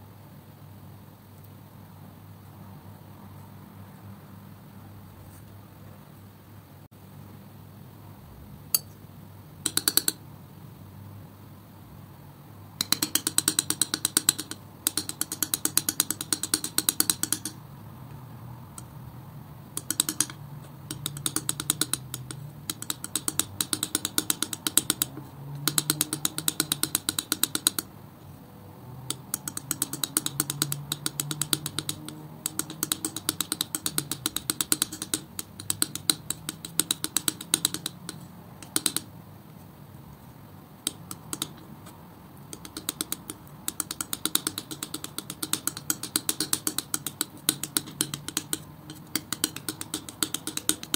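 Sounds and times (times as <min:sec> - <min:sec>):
sticky paint clicking: 0:09.7 - 0:10.2, 0:12.8 - 0:17.6, 0:19.8 - 0:27.9, 0:29.1 - 0:39.2, 0:40.8 - 0:50.9.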